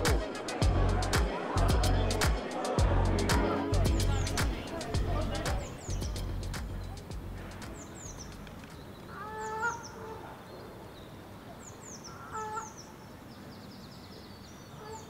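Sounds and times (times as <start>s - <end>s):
small birds chirping: 3.8s - 15.0s.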